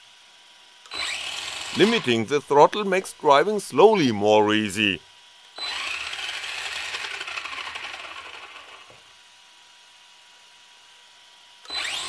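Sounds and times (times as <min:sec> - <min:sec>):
electric motor whirring with rattle: 0:00.6 - 0:02.2, 0:05.4 - 0:09.2, 0:11.6 - 0:12.0.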